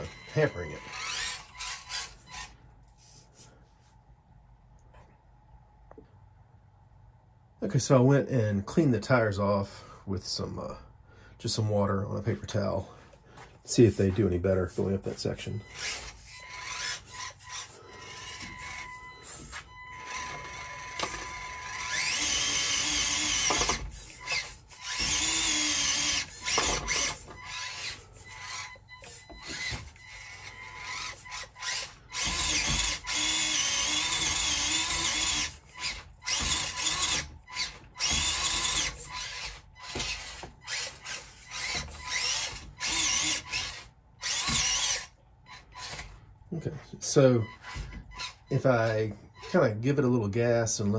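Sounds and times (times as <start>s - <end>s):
small electric motor whining: 0.0s - 2.6s, 15.4s - 46.2s, 47.4s - 49.7s.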